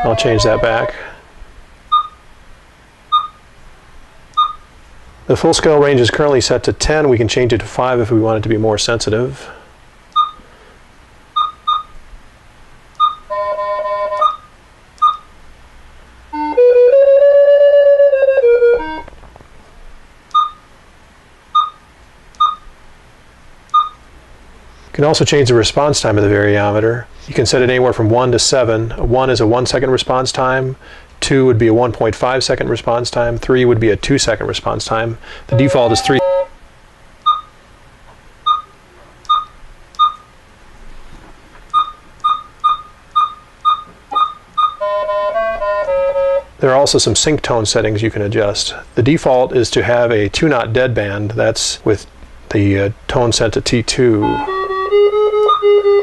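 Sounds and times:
variometer pitched tone: 0.0 - 1.0, 13.0 - 15.3, 35.5 - 36.6, 41.7 - 46.5, 54.2 - 56.0
buzzy tone stepping in pitch: 0.0 - 1.1, 16.3 - 19.1, 35.5 - 36.6
short electronic beeps: 1.9 - 2.2, 3.1 - 3.4, 4.4 - 4.6, 10.2 - 10.4, 11.4 - 12.0, 13.0 - 15.3, 20.4 - 20.6, 21.6 - 21.8, 22.4 - 22.7, 23.7 - 24.0, 35.5 - 36.5, 37.3 - 37.6, 38.5 - 40.3, 41.7 - 44.9, 55.4 - 55.7.

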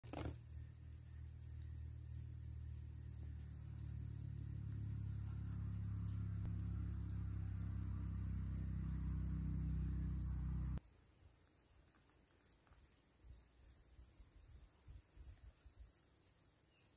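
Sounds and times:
high-pitched insect trill: 0.0 - 16.9
low layered hum: 0.9 - 10.8.

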